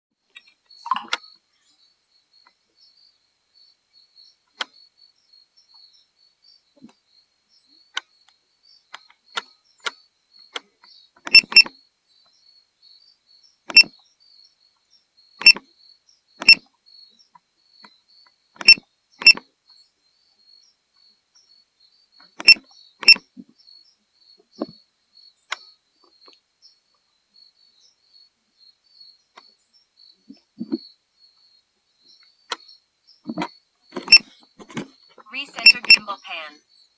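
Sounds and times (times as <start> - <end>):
insects chirring: 0.2 - 36.9
sharp clicks: 7.9 - 11.7, 13.7 - 13.9, 15.4 - 15.6, 16.4 - 16.6, 18.6 - 19.4, 22.4 - 23.2, 33.3 - 36.3.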